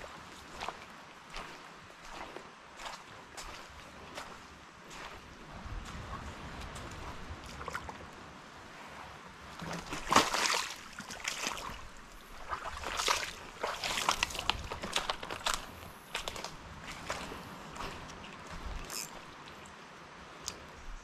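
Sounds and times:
footsteps through dry leaves: 12.6 - 17.5.

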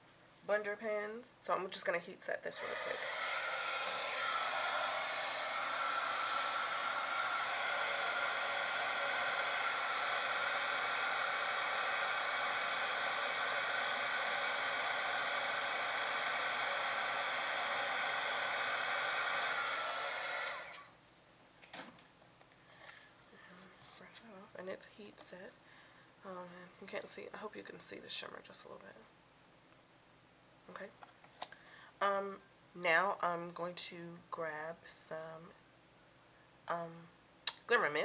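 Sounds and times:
heat tool blowing: 2.6 - 20.9.

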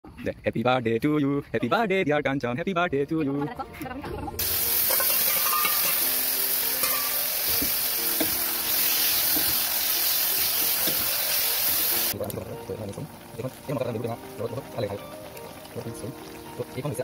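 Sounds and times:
chicken sizzling in hot oil: 4.4 - 17.0.

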